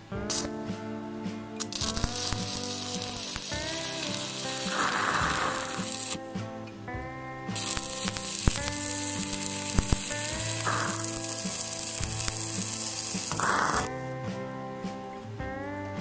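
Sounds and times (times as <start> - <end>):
welding arc popping: 0.2 - 0.7, 1.6 - 6.3, 7.5 - 13.9
welding arc hissing: 0.3 - 0.6, 1.6 - 6.2, 7.6 - 13.9.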